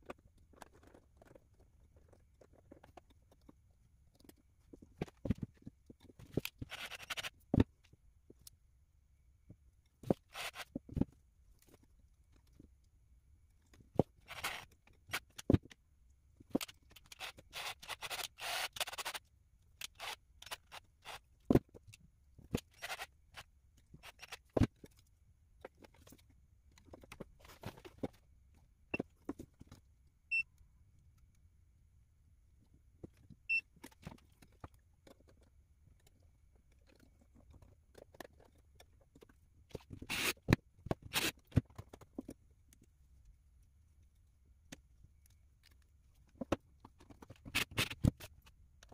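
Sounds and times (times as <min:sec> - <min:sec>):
clicks and taps of handling objects: 0:00.0 - 0:08.6, 0:19.0 - 0:31.4, 0:32.6 - 0:48.9.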